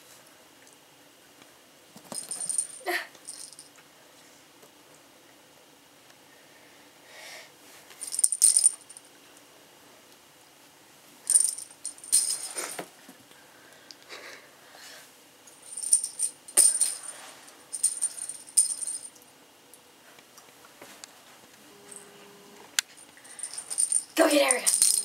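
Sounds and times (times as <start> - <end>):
bell in toy ball jingling: 2.2 - 3.7, 8.0 - 9.0, 11.3 - 12.6, 15.6 - 17.1, 17.7 - 19.1, 23.4 - 25.0.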